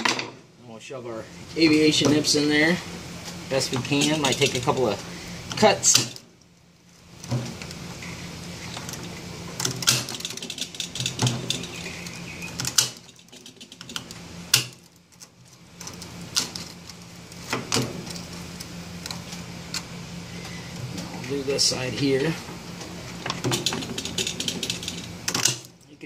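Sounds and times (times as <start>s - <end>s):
low steady hum: 0.0s - 26.0s
snips snapping wire: 5.5s - 6.2s, 9.6s - 19.9s.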